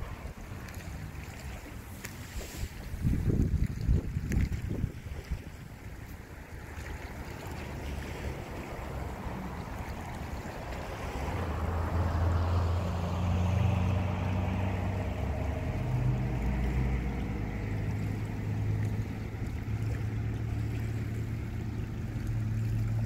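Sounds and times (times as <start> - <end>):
distant motorboat engine drone: 0.0 - 23.0
wind noise: 1.9 - 6.4.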